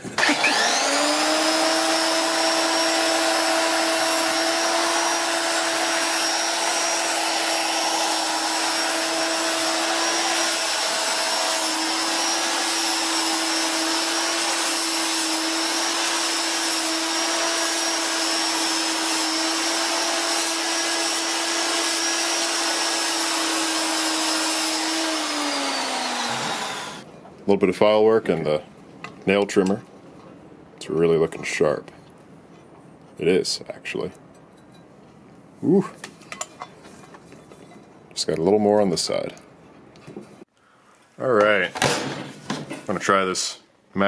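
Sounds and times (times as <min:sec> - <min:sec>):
angle grinder grinding metal: 0:00.0 - 0:27.1.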